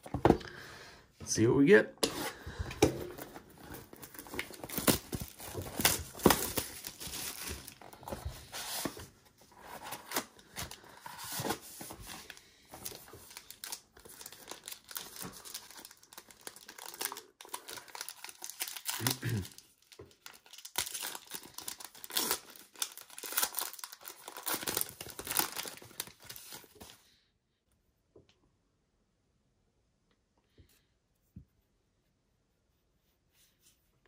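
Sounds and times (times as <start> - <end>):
cardboard box opening: 2.1 - 12.2
foil pack crinkling: 3.6 - 8.1, 12.2 - 26.9
shrink-wrap being slit and torn: 14.6 - 19.6, 20.2 - 25.8.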